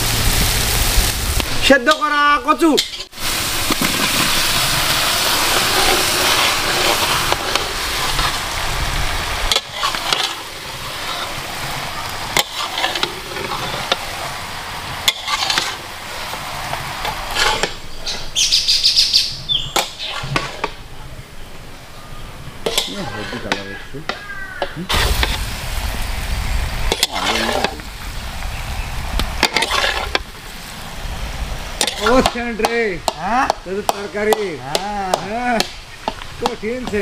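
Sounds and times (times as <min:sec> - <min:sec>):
food sizzling loudly in a pan: 0:00.0 - 0:20.8, 0:22.6 - 0:37.0
spatula scraping a pan: 0:05.2 - 0:08.6, 0:09.4 - 0:18.4, 0:19.8 - 0:20.8, 0:22.6 - 0:25.4, 0:26.9 - 0:27.9, 0:29.4 - 0:30.5, 0:31.8 - 0:32.8.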